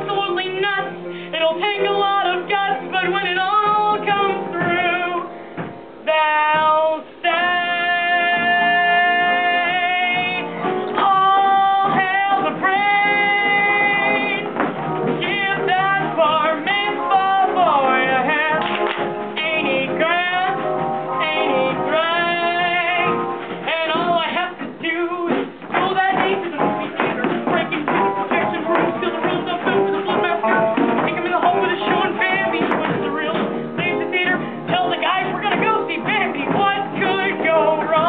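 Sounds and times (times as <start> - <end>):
person singing: 0.0 - 5.3, 6.0 - 38.0
instrumental accompaniment: 0.0 - 38.0.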